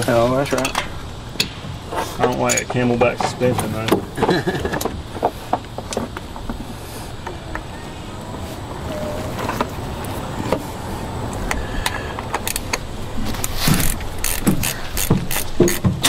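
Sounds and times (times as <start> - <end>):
ratchet wrench clicking: 13.7 - 15.9.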